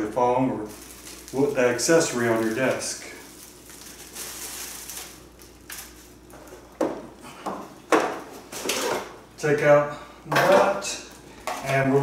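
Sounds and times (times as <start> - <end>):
plastic wrap rustling: 0.0 - 7.2.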